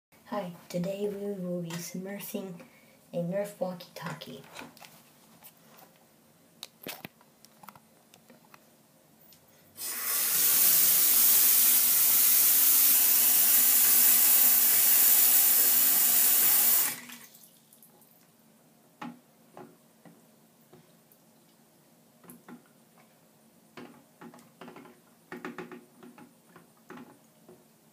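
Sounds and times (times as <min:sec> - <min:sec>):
tap water running into basin: 0:09.8 - 0:18.1.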